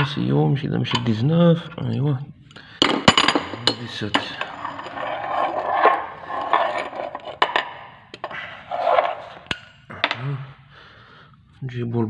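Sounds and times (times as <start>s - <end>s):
metal spanner scraping and clinking: 2.8s - 10.2s.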